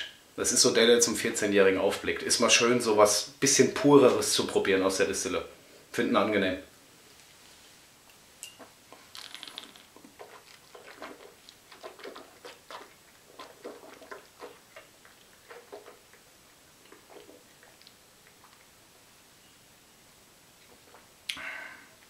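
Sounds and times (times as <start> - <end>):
wet mouth smacks and tongue clicks: 9.0 - 16.2.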